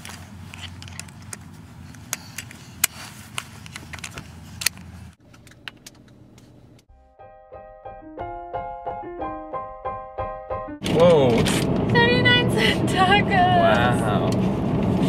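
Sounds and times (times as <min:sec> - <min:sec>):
sharp clicks and rattles: 0:00.0 - 0:02.9
car interior rumble: 0:10.8 - 0:15.0.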